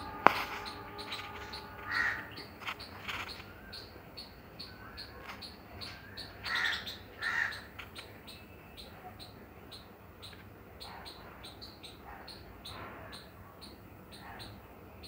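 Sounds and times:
squirrel chipping call: 0:00.0 - 0:03.2
crow cawing: 0:01.8 - 0:02.4, 0:06.5 - 0:07.7.

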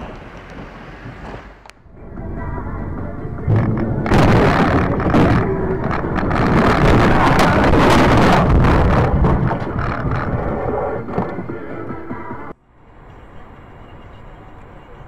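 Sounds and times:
knocks and scrapes: 0:03.0 - 0:11.6.

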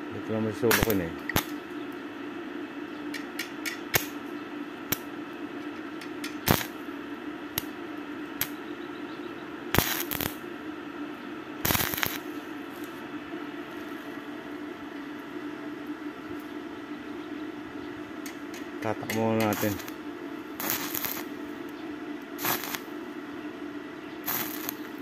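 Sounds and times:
steady low hum: 0:00.0 - 0:25.0
welding arc bursts: 0:00.7 - 0:01.6, 0:03.9 - 0:04.2, 0:06.2 - 0:06.8, 0:09.7 - 0:10.4, 0:11.6 - 0:12.4, 0:19.3 - 0:20.0, 0:20.6 - 0:21.4, 0:22.4 - 0:22.9, 0:24.2 - 0:25.0.

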